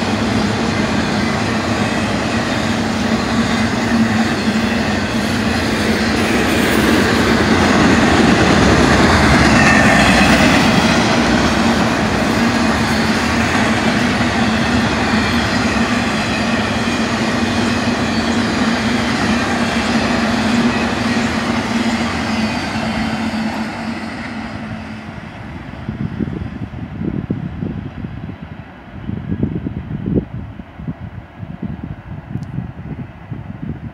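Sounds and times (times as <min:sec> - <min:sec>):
train wheels rushing on rail: 0:00.0 - 0:33.9.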